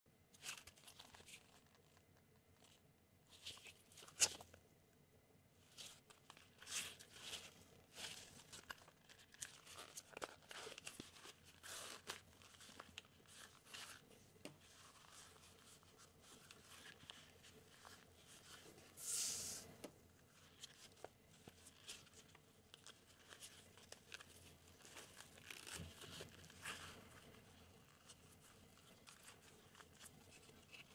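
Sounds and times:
fabric rustles and scrapes: 0:20.3 - 0:30.9.

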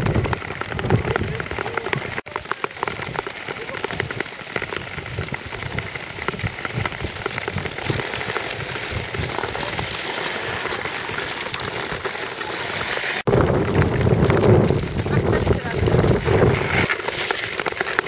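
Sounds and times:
skate blades gliding over ice: 0:00.0 - 0:18.0
clicks of blades and poles on ice: 0:06.2 - 0:13.3, 0:16.2 - 0:18.0.

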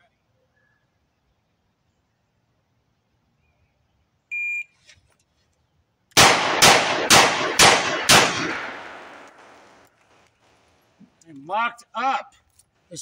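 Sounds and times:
revolver shots echoing: 0:06.2 - 0:09.8.

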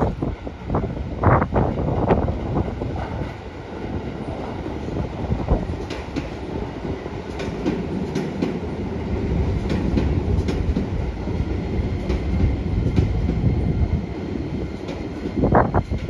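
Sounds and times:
train rumbling: 0:00.0 - 0:16.0.

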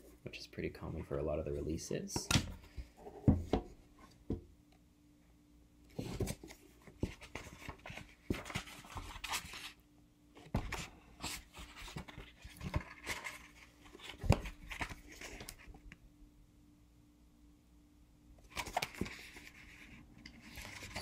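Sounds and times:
book rustling and scraping: 0:10.5 - 0:15.8, 0:18.5 - 0:21.0.

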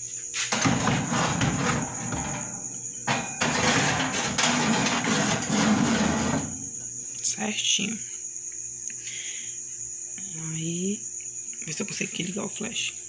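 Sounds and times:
cricket trill: 0:00.0 - 0:13.0
glass dish scraping on oven rack: 0:00.5 - 0:06.8.

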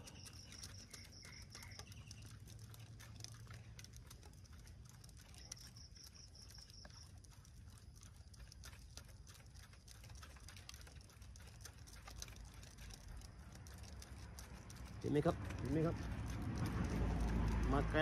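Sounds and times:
faint high pulsing chirp: 0:00.0 - 0:02.8
soft ticks: 0:00.0 - 0:18.0.

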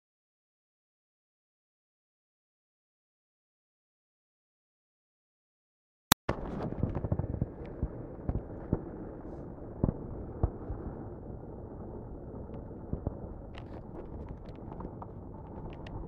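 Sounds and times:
wind rumbling on microphone: 0:06.3 - 0:16.0.

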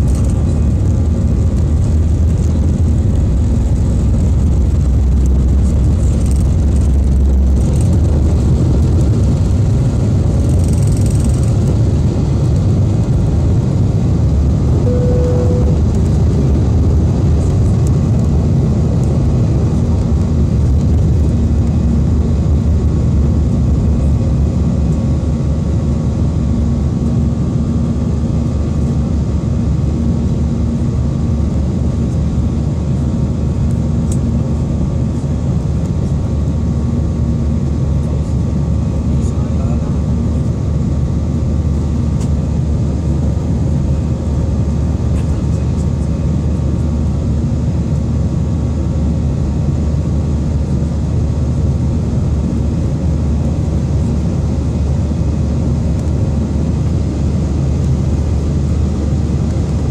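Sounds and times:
deep rumble: 0:00.0 - 0:29.8
jet engine and air noise: 0:00.0 - 0:59.9
steady hum: 0:00.0 - 0:59.9
brief tone: 0:14.8 - 0:16.1.

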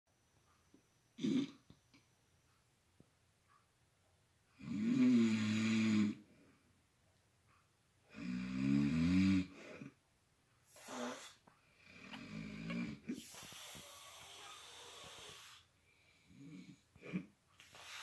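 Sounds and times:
small snorts: 0:01.2 - 0:01.8, 0:04.5 - 0:06.2, 0:08.1 - 0:10.0, 0:10.6 - 0:18.0
man snoring: 0:04.6 - 0:06.2, 0:08.1 - 0:09.9, 0:10.8 - 0:15.7, 0:16.3 - 0:17.2
wheezing breaths: 0:10.6 - 0:18.0.

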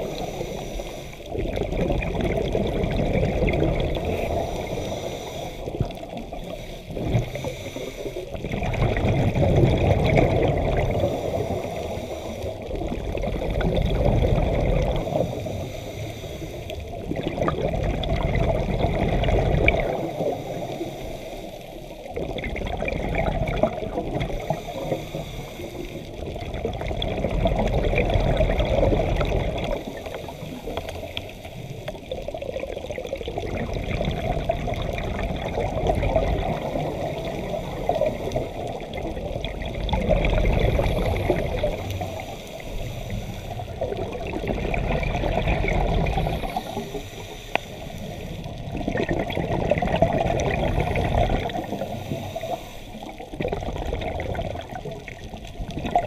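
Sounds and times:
regulator inhales: 0:00.0 - 0:01.3, 0:04.0 - 0:08.3, 0:11.0 - 0:12.7, 0:15.0 - 0:16.9, 0:20.4 - 0:21.9, 0:24.3 - 0:26.1, 0:40.7 - 0:43.8, 0:46.2 - 0:48.5, 0:51.5 - 0:53.3
exhaled bubbles gurgling: 0:00.0 - 0:56.0.

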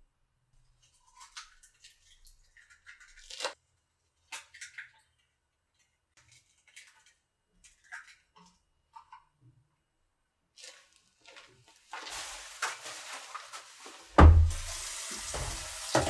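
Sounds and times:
wet squishing: 0:00.8 - 0:08.6, 0:10.5 - 0:13.9.

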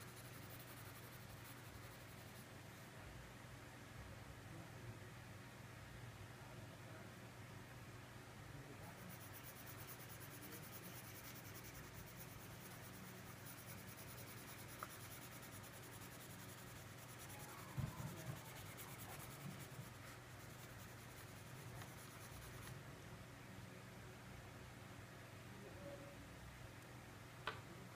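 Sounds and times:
crayon scribbling on paper: 0:00.0 - 0:02.4, 0:09.0 - 0:22.7.

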